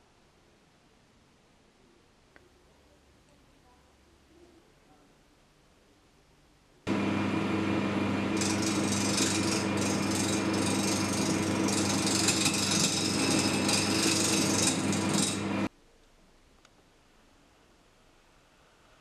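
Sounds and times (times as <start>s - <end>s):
lathe motor hum: 6.9s - 15.7s
file scraping on workpiece: 8.4s - 15.7s.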